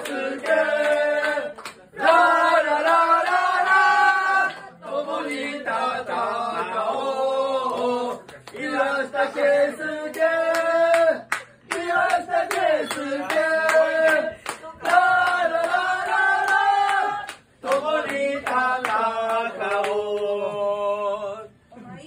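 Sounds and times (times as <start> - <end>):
hand claps: 0.0 - 1.9, 7.7 - 8.8, 10.1 - 20.3
men singing a chant: 0.0 - 21.5.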